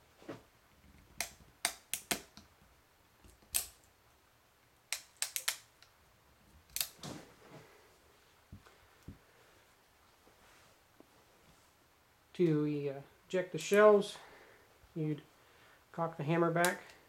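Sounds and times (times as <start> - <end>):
revolver cocking clicks: 4.9 - 5.7.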